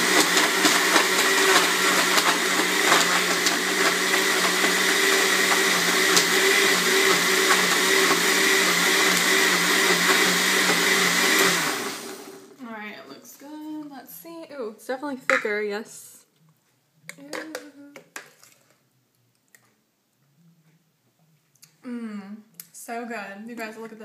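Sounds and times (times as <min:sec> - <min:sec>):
blender motor whirring: 0:00.0 - 0:12.6.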